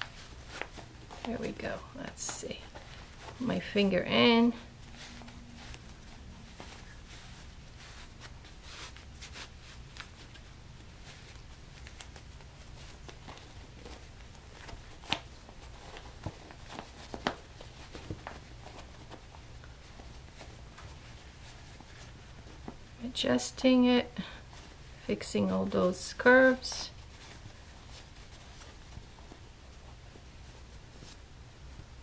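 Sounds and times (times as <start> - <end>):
fabric rustling and crumpling: 0.0 - 23.0, 24.3 - 32.0
low hum: 3.4 - 7.8.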